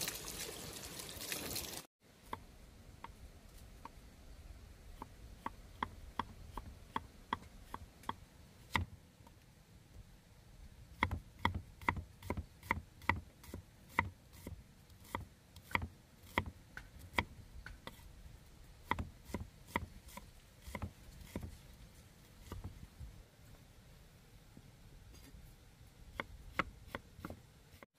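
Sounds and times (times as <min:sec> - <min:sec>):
cleaver chopping on wooden board: 0:11.0 - 0:18.0, 0:18.9 - 0:21.5.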